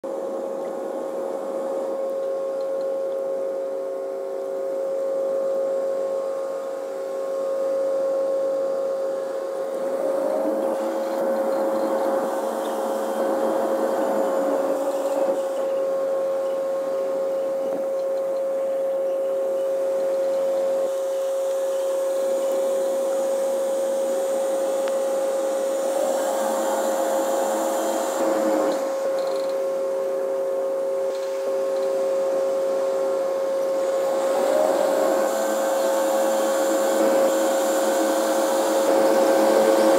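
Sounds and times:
constant high hum: 0.0 - 39.9
tugboat diesel engines droning: 0.0 - 39.9.

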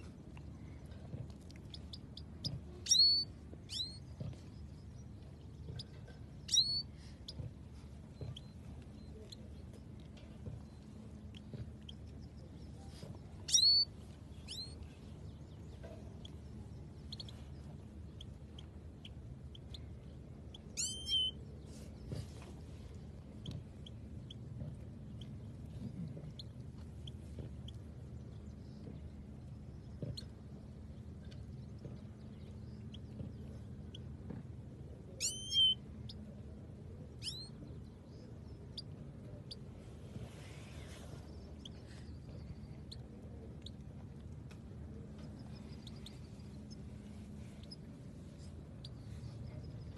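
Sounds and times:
low steady hum: 0.0 - 49.9
finches chirping: 1.7 - 7.5, 10.6 - 22.2, 35.2 - 36.2, 37.2 - 39.6, 40.8 - 43.8, 45.1 - 49.9.

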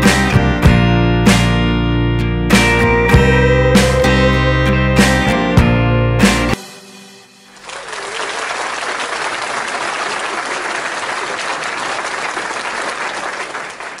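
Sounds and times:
crowd applause: 7.5 - 14.0.

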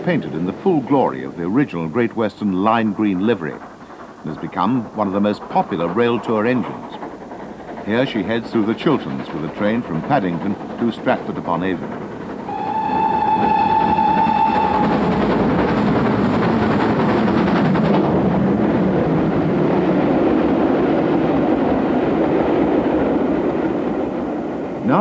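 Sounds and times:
coaches clattering over track: 0.0 - 19.7
steam locomotive passing: 0.0 - 25.0
steam locomotive whistle: 12.5 - 16.2.

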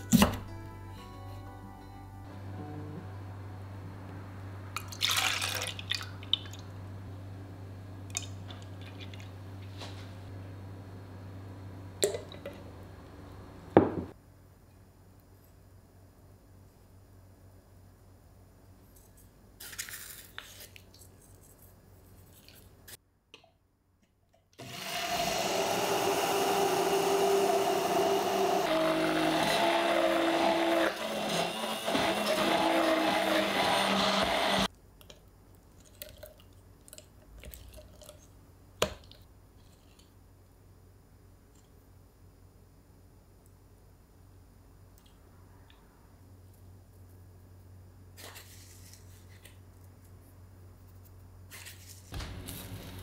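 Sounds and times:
immersion blender humming: 24.6 - 34.7.

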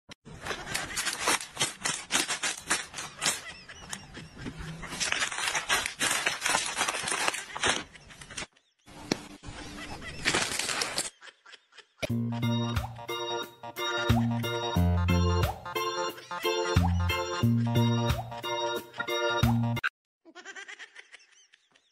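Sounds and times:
plastic snack bag crinkling: 0.3 - 3.6, 4.7 - 8.5, 10.0 - 11.2.

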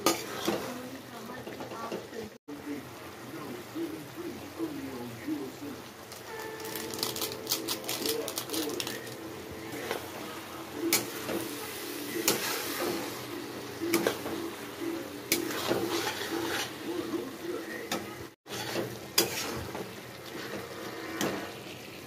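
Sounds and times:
spatula scraping a pan: 0.0 - 2.0, 10.9 - 17.2, 17.9 - 22.0.

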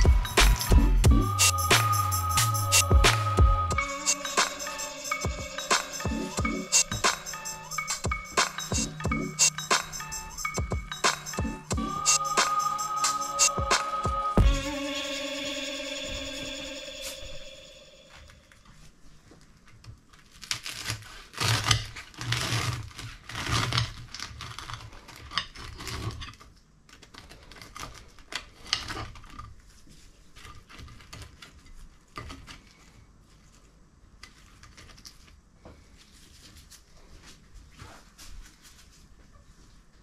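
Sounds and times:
knife crunching fried crust: 20.3 - 26.4.

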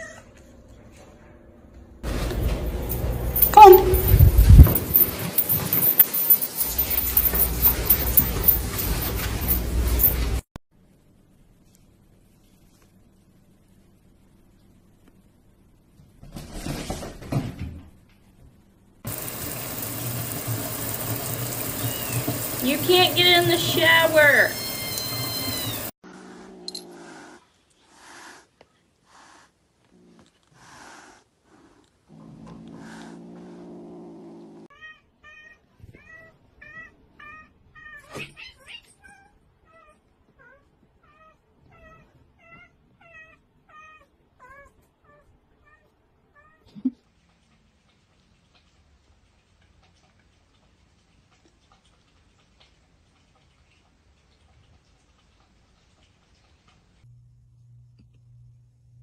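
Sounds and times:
running water: 19.1 - 25.9
cat meowing: 24.5 - 25.9.

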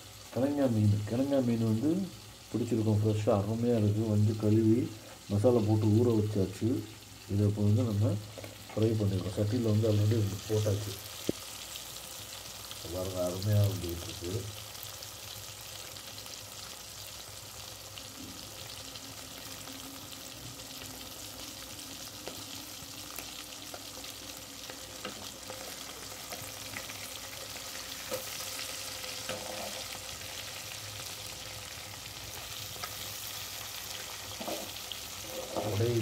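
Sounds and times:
fish sizzling in hot oil: 0.0 - 36.0.

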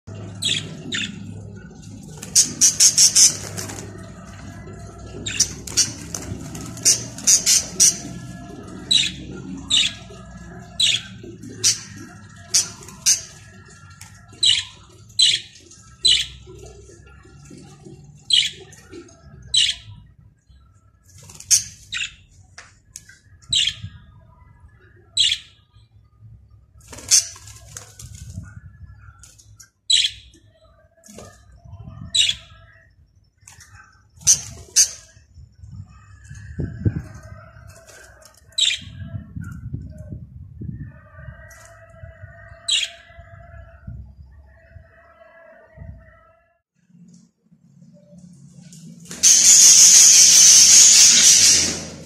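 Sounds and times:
budgerigars chirping: 2.4 - 3.4, 6.8 - 8.1, 49.2 - 52.0.

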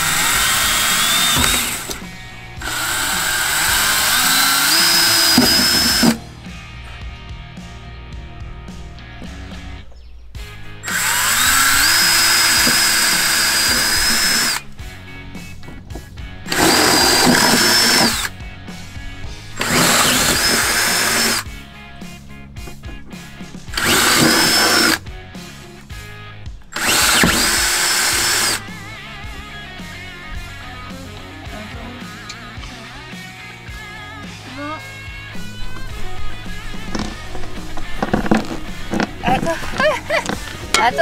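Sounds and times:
cordless drill boring into metal: 0.0 - 6.2, 10.8 - 14.6, 16.5 - 18.4, 19.6 - 21.5, 23.7 - 25.0, 26.7 - 28.8, 36.5 - 40.9
background music: 0.0 - 41.0.

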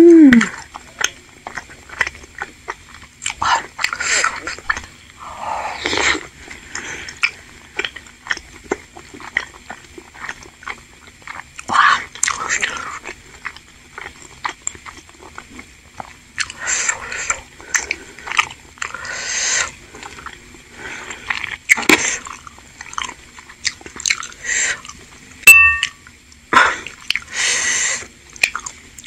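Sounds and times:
wet chewing and mouth noises: 0.2 - 25.2, 25.9 - 27.4, 28.0 - 29.0
utensil clinking ceramic bowl: 25.5 - 26.0.

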